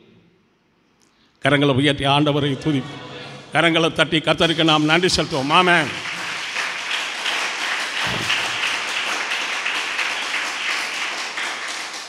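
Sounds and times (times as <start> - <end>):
congregation clapping: 4.4 - 12.0.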